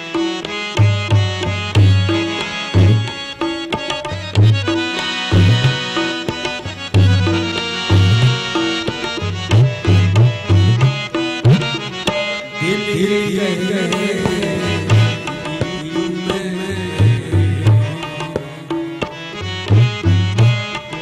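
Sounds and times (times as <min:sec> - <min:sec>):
held accompaniment notes: 0:00.0 - 0:21.0
tabla playing a rhythm: 0:00.0 - 0:21.0
man singing: 0:12.6 - 0:19.2.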